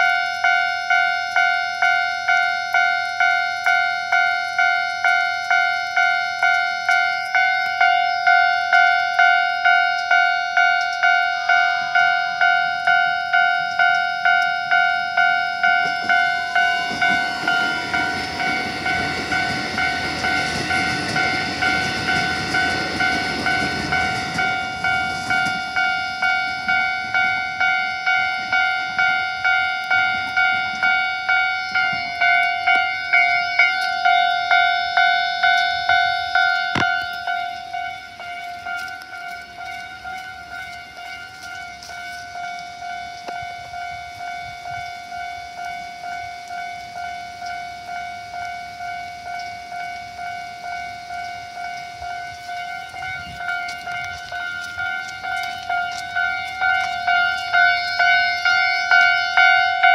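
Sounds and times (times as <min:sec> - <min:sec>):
electric train passing: 0:00.0 - 0:59.9
level-crossing bell dinging: 0:00.0 - 0:59.9.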